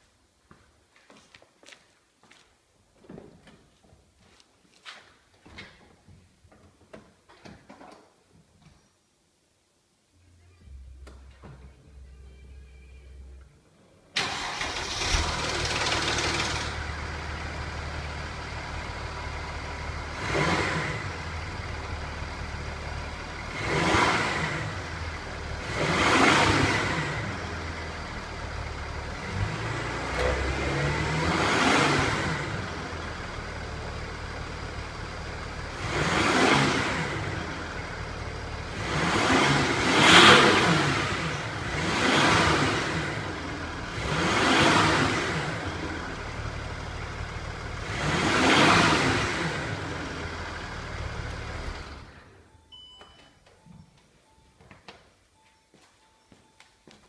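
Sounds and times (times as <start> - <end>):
diesel engine starting: 14.1 - 52.5
diesel engine idling: 14.2 - 20.2.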